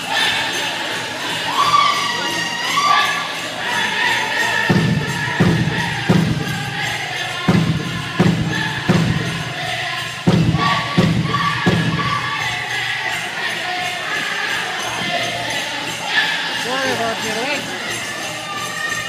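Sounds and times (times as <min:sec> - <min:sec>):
group singing: 0:00.0 - 0:19.0
large drum heavy beats: 0:04.6 - 0:13.0.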